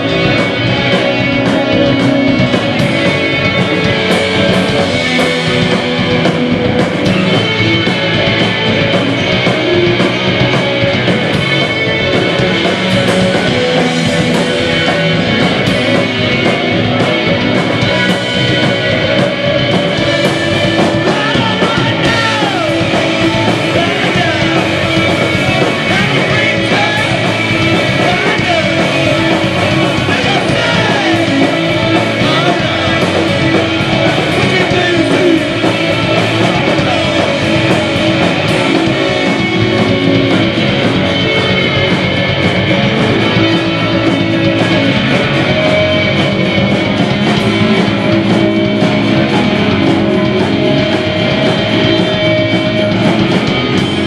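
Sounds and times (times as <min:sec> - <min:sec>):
bass guitar: 0:00.0 - 0:54.0
drum kit: 0:00.0 - 0:54.0
electric guitars: 0:00.0 - 0:54.0
person singing: 0:12.1 - 0:40.0.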